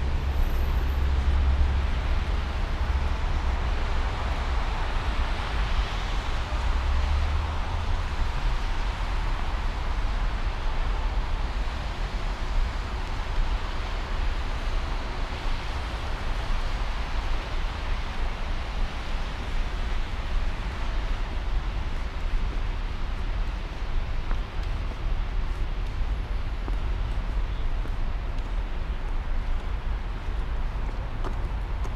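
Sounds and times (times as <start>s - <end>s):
traffic rumble and hiss: 0.0s - 31.9s.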